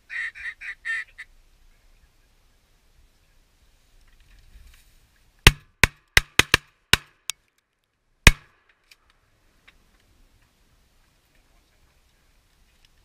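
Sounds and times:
shotgun shots: 0:05.5 - 0:07.2, 0:08.3 - 0:08.5.

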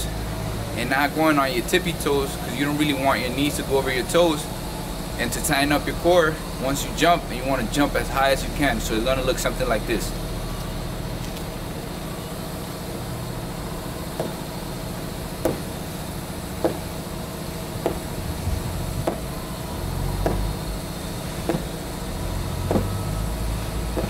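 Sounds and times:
steady low rumble: 0:01.5 - 0:24.0
sneakers thudding on asphalt: 0:14.2 - 0:14.4, 0:15.4 - 0:15.8, 0:16.6 - 0:16.9, 0:17.8 - 0:18.1, 0:18.8 - 0:19.3, 0:20.2 - 0:20.7, 0:21.4 - 0:21.8, 0:22.7 - 0:23.0.

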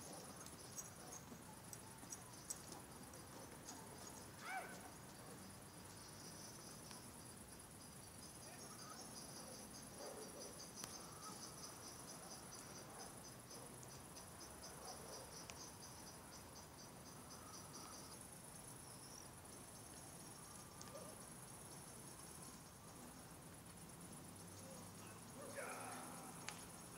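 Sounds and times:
insect pulsing chirp: 0:00.0 - 0:26.9
insect high trill: 0:15.3 - 0:26.9.

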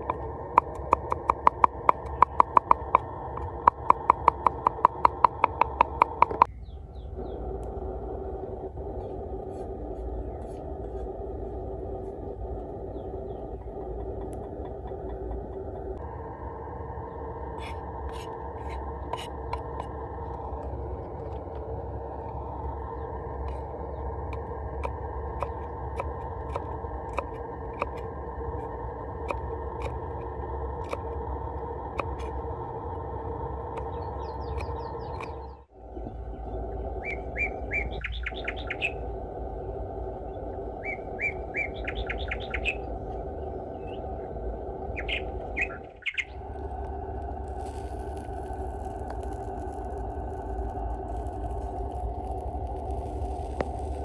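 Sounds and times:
sharp clicks: 0:00.0 - 0:06.5, 0:17.6 - 0:32.4
steady low background noise: 0:00.0 - 0:54.0
small birds chirping: 0:00.1 - 0:07.7, 0:09.8 - 0:11.1, 0:12.5 - 0:15.6, 0:17.0 - 0:30.2, 0:33.7 - 0:46.6.

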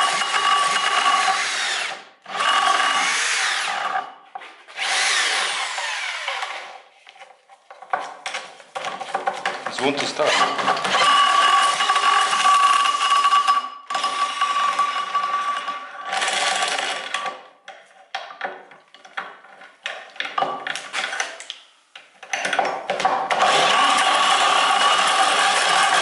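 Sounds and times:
electric drill whining: 0:00.0 - 0:04.0, 0:04.7 - 0:06.8, 0:10.3 - 0:17.1, 0:23.3 - 0:26.0
clicks and knocks of tools: 0:17.2 - 0:23.2
engine turning over: 0:23.3 - 0:26.0.

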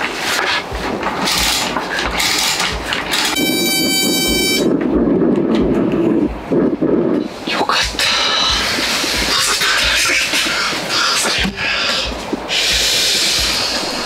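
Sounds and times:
heater igniter buzzing: 0:00.7 - 0:05.6.

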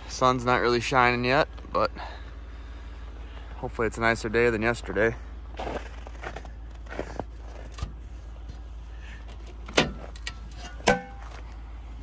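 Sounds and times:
pickup truck engine idling: 0:00.0 - 0:12.0
metal cover clanking: 0:09.7 - 0:11.3.

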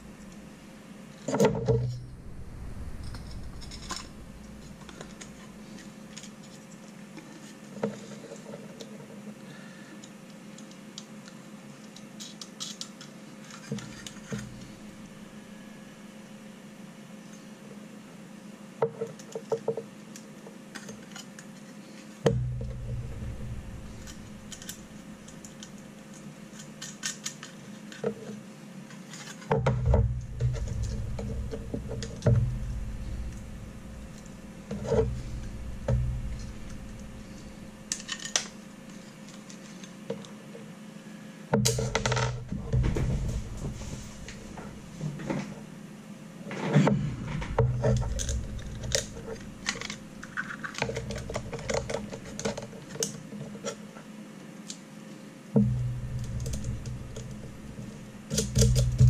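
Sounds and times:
low rumbling handling noise: 0:00.0 - 0:06.8, 0:13.8 - 0:16.6, 0:22.3 - 0:27.0, 0:29.5 - 0:39.7, 0:41.6 - 0:53.7, 0:55.6 - 0:59.0
metal parts clicking and clinking: 0:11.8 - 0:14.7, 0:23.9 - 0:32.4, 0:37.8 - 0:40.0, 0:47.4 - 0:53.8.

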